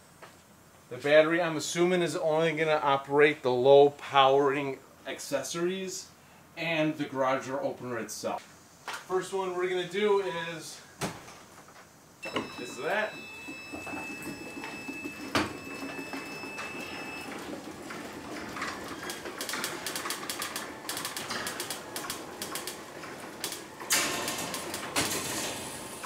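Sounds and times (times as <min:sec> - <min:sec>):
garage door motor and rattle: 0:12.2 - 0:26.0
garage door opener click: 0:12.2 - 0:26.0.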